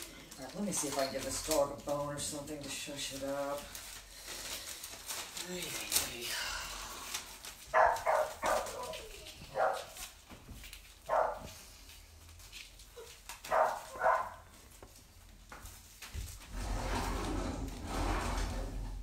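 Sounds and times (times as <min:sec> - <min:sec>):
dog barking: 0:07.7 - 0:10.0, 0:11.1 - 0:11.5, 0:13.5 - 0:14.5.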